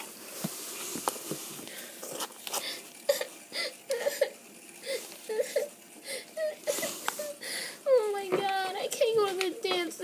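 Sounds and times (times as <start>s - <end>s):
dolls clicking against plastic: 8.2s - 10.0s.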